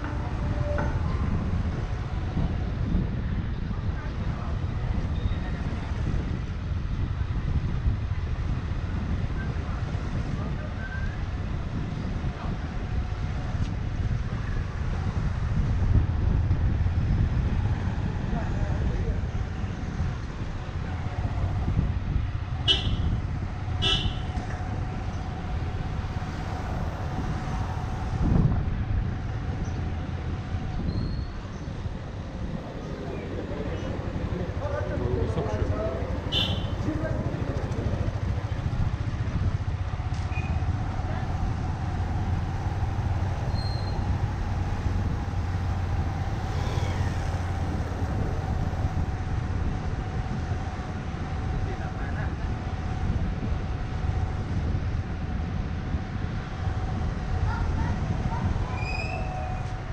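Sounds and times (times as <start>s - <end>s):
street traffic rumble: 0.0s - 59.9s
wind buffeting microphone: 0.0s - 59.9s
vehicle horn beeps: 22.7s - 23.1s, 23.8s - 24.3s, 36.3s - 36.8s.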